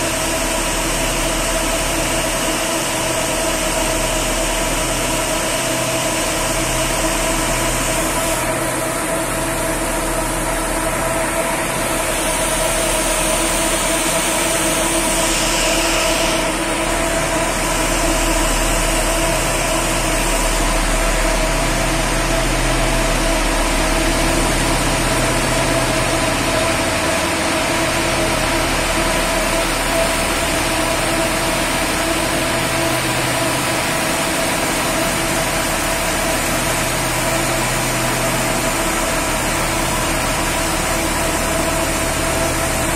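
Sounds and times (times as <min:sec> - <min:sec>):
bus wash machine hum: 0:00.0 - 0:42.9
hiss of air and water: 0:11.7 - 0:21.9.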